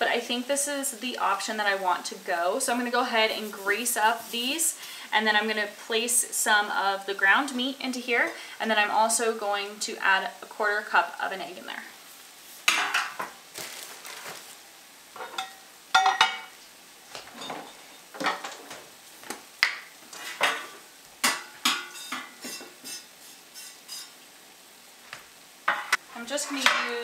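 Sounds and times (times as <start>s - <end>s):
metal tin and utensils clinking: 15.2s - 16.5s, 20.2s - 24.1s.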